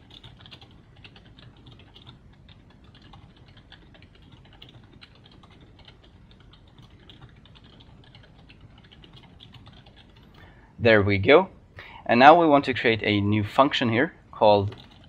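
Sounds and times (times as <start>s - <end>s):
computer keyboard typing: 0.0s - 10.5s, 14.7s - 15.0s.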